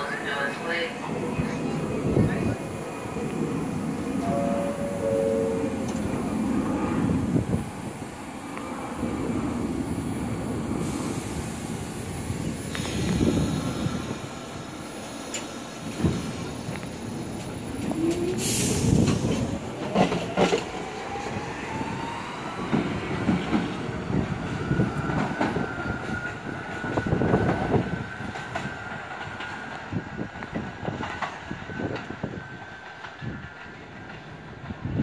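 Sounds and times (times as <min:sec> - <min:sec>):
subway train wheels clacking: 0:00.0 - 0:35.0
loud hiss: 0:09.9 - 0:16.4.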